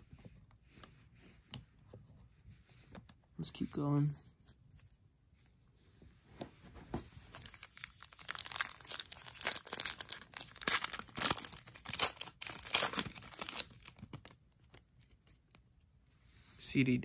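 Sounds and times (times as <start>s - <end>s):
foil wrapper tearing and crinkling: 7.4s - 14.4s.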